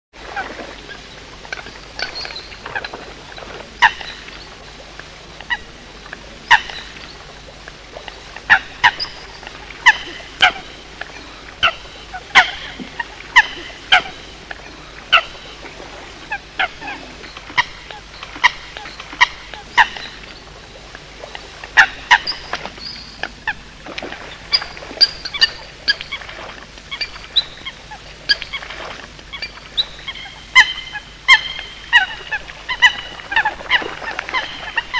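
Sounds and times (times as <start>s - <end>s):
coot calls: 8.4s - 15.6s.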